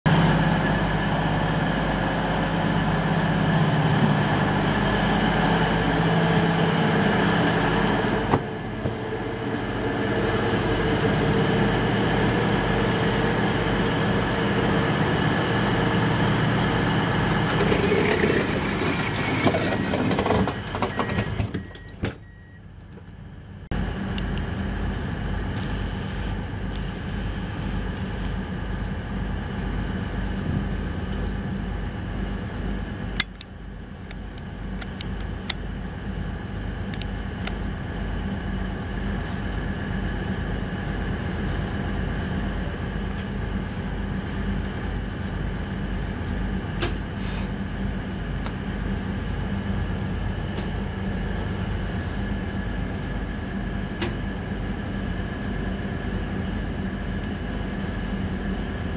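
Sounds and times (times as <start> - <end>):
diesel engines idling: 0.1 - 58.9
short beeps: 20.9 - 22.6.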